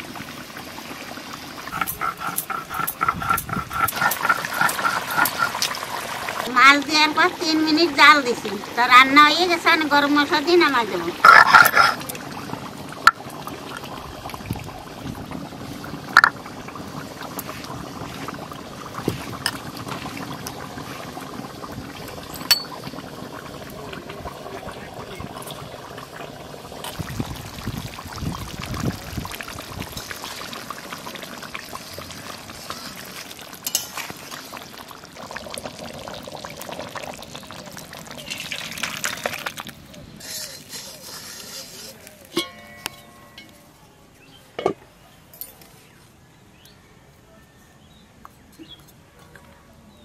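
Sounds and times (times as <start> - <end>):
stone roller grinding: 1.8 - 5.6, 40.2 - 42.1
water pouring over stone: 11.4 - 41.9.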